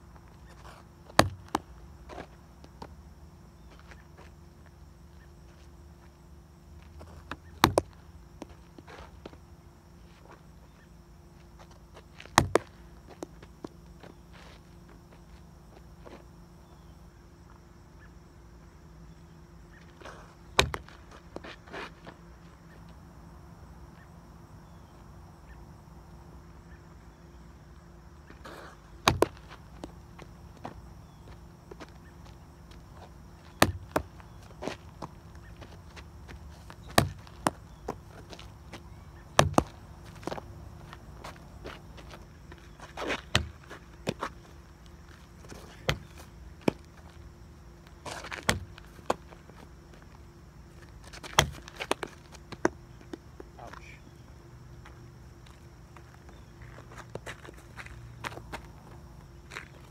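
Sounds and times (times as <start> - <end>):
insect drone: 0.0 - 59.9
knocks and scuffs on asphalt: 0.1 - 16.9, 19.1 - 23.0, 28.2 - 59.9
baseball smacking loudly: 29.0 - 29.4, 33.5 - 34.1, 39.4 - 39.8.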